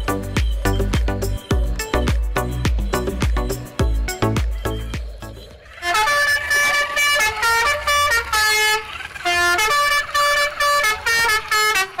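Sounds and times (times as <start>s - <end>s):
horn playing honking notes: 5.6s - 12.0s.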